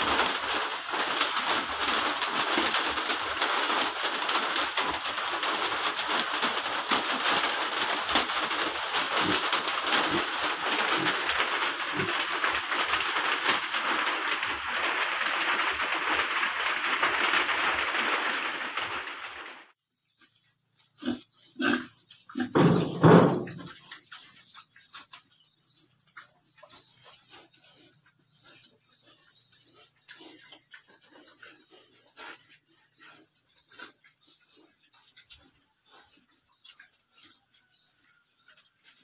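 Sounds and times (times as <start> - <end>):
small birds chirping: 20.0 - 39.0
pigs grunting: 21.0 - 23.8.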